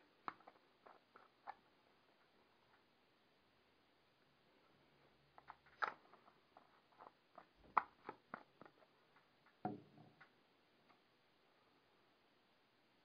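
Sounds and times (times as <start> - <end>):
bottle set down knock: 9.7 - 10.1
plastic bottle clicks and taps: 9.7 - 10.2.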